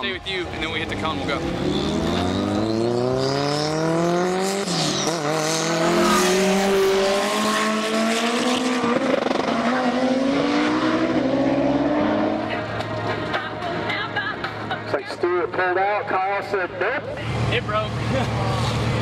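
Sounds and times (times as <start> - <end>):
cars accelerating and passing: 0.0 - 19.0.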